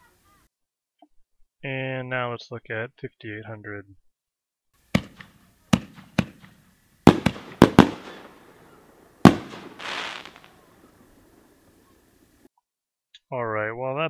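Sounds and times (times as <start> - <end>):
short hiss: 4.8 - 12.5
fireworks shells booming: 4.9 - 12.4.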